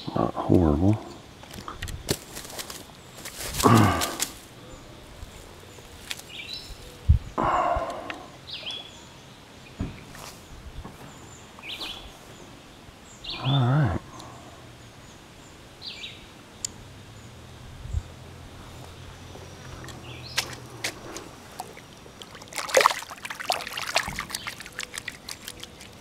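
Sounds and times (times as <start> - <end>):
low hum-like vocal sound: 0.0 - 1.3, 3.6 - 5.8, 7.1 - 8.6, 13.2 - 15.0
lakeside ambience: 0.0 - 26.0
rustle: 0.9 - 26.0
bird calling: 18.6 - 26.0.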